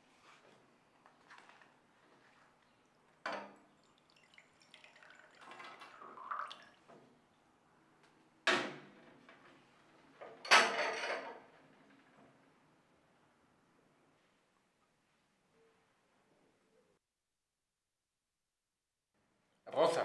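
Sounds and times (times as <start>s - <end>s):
coffee pouring into cup: 1.1s - 6.9s.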